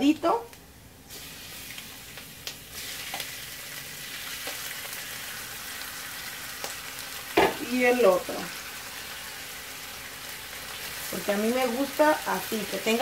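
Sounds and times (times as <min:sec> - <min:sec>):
shrimp sizzling in hot oil: 0:01.1 - 0:13.0.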